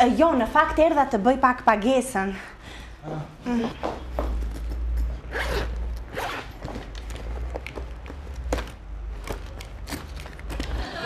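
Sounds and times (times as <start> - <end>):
zipper rasping: 4.4 - 7.5.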